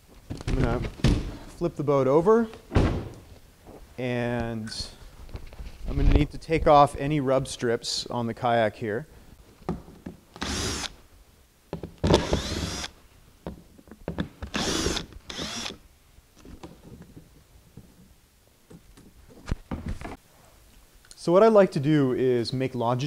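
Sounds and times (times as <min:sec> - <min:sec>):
cordless drill running in bursts: 0:12.2 - 0:12.9, 0:14.5 - 0:15.8.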